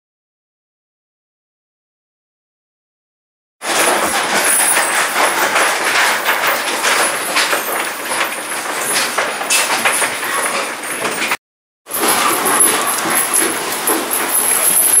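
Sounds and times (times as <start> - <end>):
metal chain rattling and clinking: 3.6 - 15.0.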